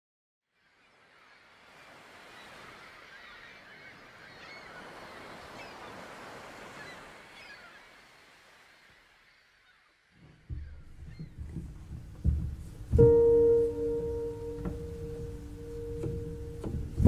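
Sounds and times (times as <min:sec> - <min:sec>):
waves breaking and washing: 0:00.6 - 0:17.0.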